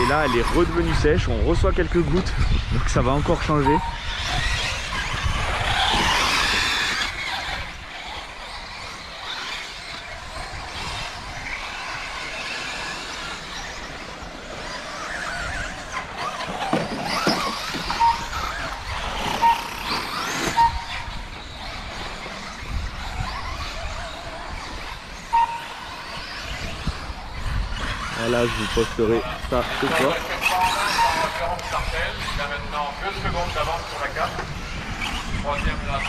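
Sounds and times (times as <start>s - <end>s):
rc car motors whining: 0.0s - 36.0s
short beeps: 25.4s - 25.8s.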